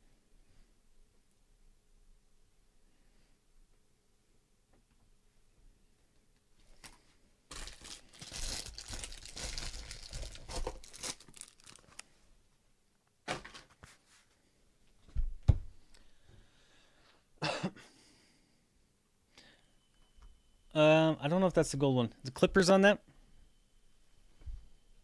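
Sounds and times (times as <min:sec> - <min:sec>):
shrink wrap tearing and crinkling: 0:06.8 - 0:12.1.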